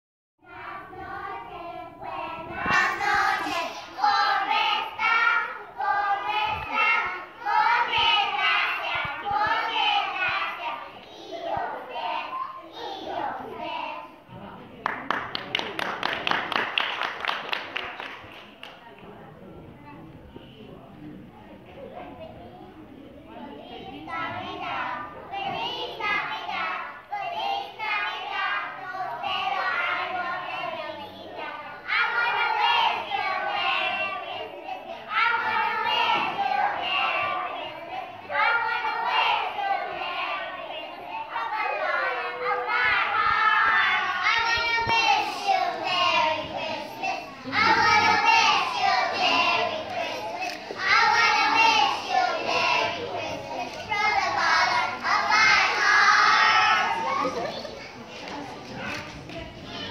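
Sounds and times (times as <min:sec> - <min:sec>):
young children singing: 0:00.4 - 0:14.5, 0:23.3 - 0:59.9.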